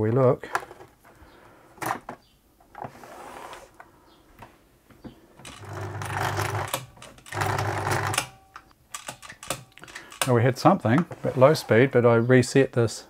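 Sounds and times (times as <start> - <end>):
sewing machine motor running: 5.5 - 8.2
clicks: 8.1 - 11.1.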